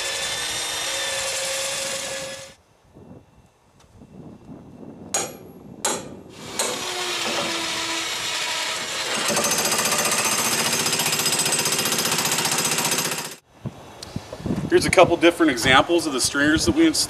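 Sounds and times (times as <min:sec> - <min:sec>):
electric demolition hammer hammering: 0:05.2 - 0:13.4.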